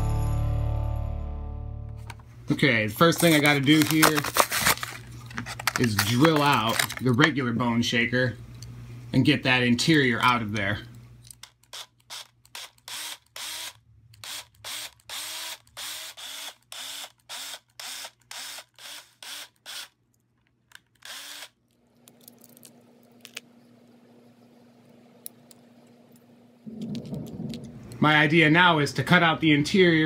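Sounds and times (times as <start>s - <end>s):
faint hum: 2.0s - 11.4s, 20.1s - 30.0s
cordless drill whirring in bursts: 11.7s - 20.0s, 21.0s - 21.6s.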